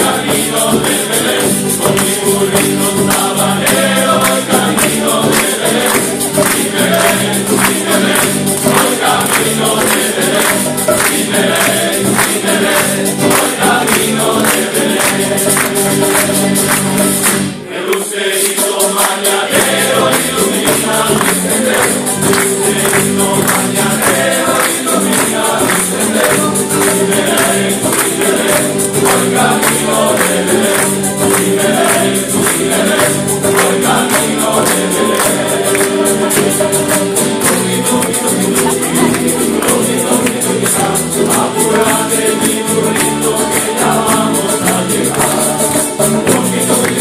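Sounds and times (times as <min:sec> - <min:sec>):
male choir singing: 0:00.0 - 0:47.0
percussion beat: 0:00.0 - 0:47.0.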